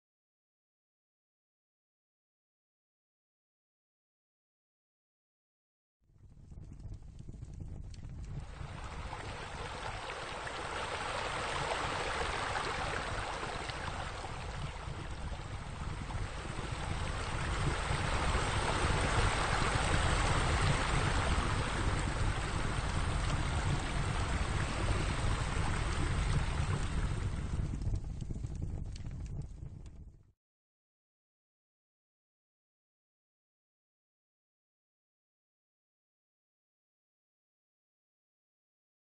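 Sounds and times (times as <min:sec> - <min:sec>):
low rumble: 0:06.2 - 0:30.2
waterfall rushing into pool: 0:08.9 - 0:26.8.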